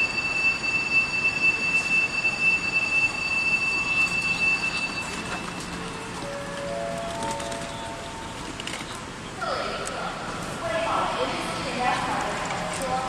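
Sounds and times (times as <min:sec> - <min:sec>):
high-pitched electronic tone: 0:00.0 - 0:08.4
suitcase wheels rolling: 0:02.4 - 0:09.1.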